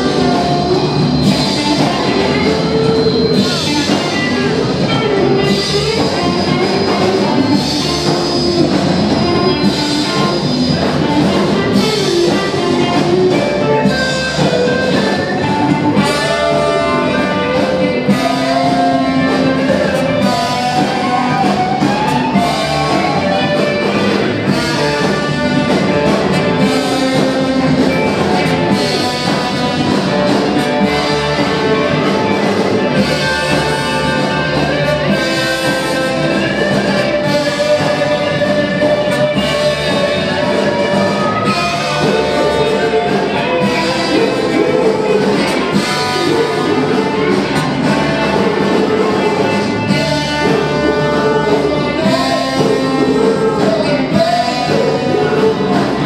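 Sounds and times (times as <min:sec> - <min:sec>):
bass: 0:00.0 - 0:56.0
drums: 0:00.0 - 0:56.0
electric guitar lead: 0:00.0 - 0:56.0
horns: 0:00.0 - 0:56.0.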